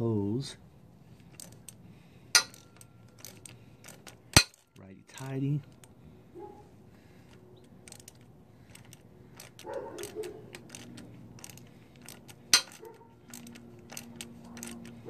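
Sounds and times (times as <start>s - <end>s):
small metallic clicks of socket tool: 1.2s - 4.7s, 7.2s - 15.0s.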